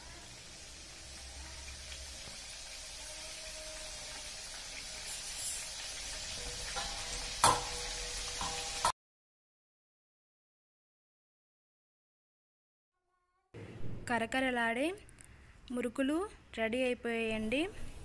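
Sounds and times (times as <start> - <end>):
food deep-frying in hot oil: 0.0 - 9.0.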